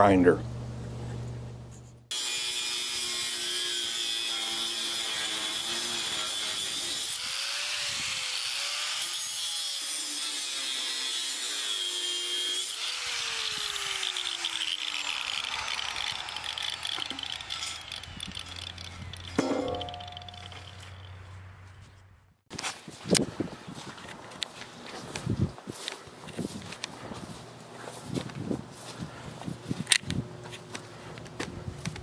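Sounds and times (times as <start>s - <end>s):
angle grinder cutting steel: 2.1s - 21.2s.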